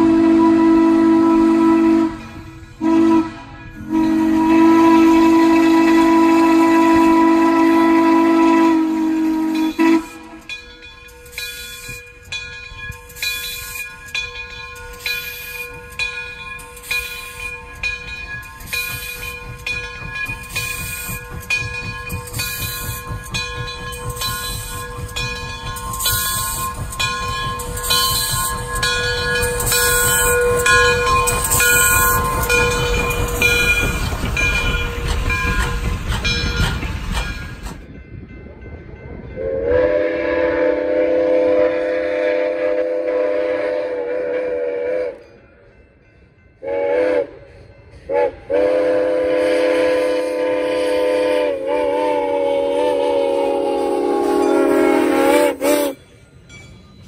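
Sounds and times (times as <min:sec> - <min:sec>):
steam locomotive whistle: 0:00.0 - 0:10.6, 0:24.1 - 0:35.9, 0:39.4 - 0:45.6, 0:46.6 - 0:56.2
steam locomotive chuffing: 0:00.0 - 0:57.0
wheels rumbling on rail: 0:00.0 - 0:57.0.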